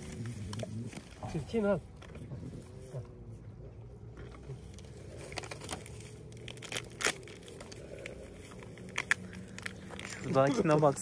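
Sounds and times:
low steady hum: 0.0s - 11.0s
plastic crinkling and rustling: 4.1s - 11.0s
sharp plastic crackles: 4.1s - 11.0s.

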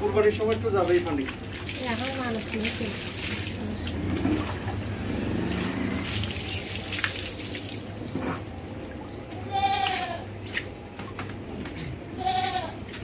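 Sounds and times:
water splashing: 0.0s - 11.8s
hose water running into bucket: 0.3s - 9.9s
goat bleating: 9.4s - 10.3s, 12.1s - 12.8s.

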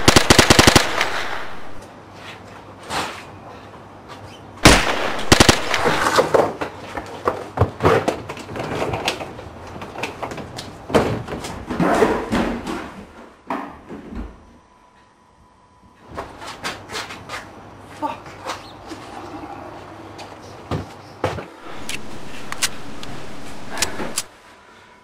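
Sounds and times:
sharp cracks: 0.0s - 1.8s, 4.6s - 6.5s.

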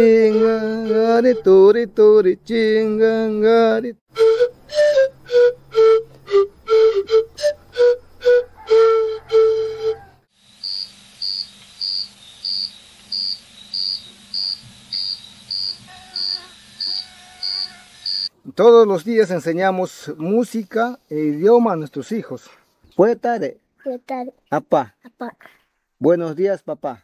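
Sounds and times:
cricket chirping: 10.4s - 18.3s.

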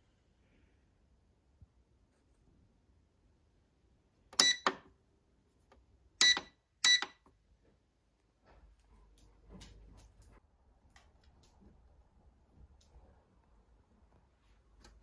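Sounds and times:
control panel beeps: 4.4s - 4.8s, 6.2s - 7.2s.

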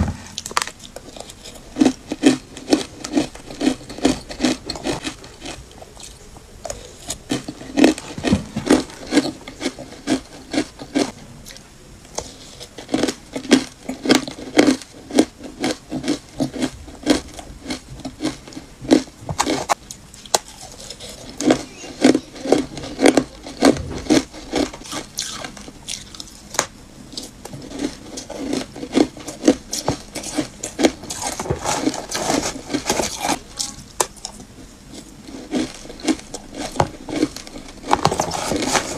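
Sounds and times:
crunching ice between teeth: 0.4s - 11.6s, 27.1s - 33.4s, 35.2s - 38.9s
metal spoon scraping ice: 35.3s - 38.9s.

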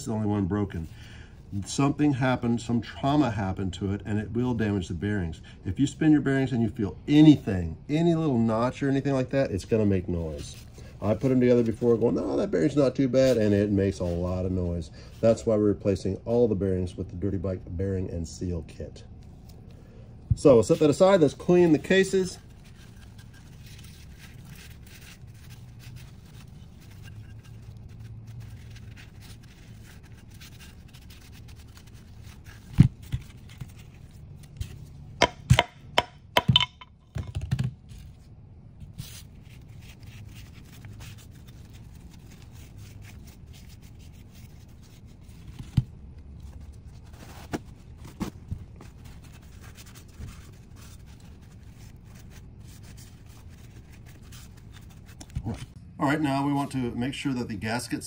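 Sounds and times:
towel rubbing on metal: 20.4s - 34.9s.

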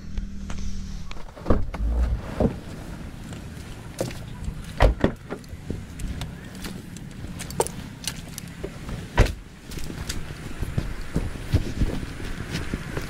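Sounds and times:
car door shutting: 4.8s - 5.8s.

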